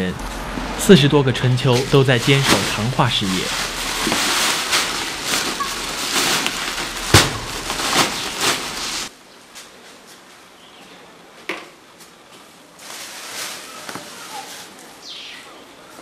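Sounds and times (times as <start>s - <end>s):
sharp hit: 1.4s - 9.1s
plastic sack crinkling and rustling: 1.6s - 9.1s, 12.8s - 14.9s.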